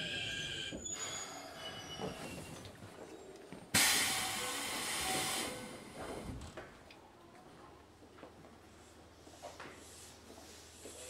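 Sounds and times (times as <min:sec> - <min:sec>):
compressed air hiss: 0:03.8 - 0:05.8.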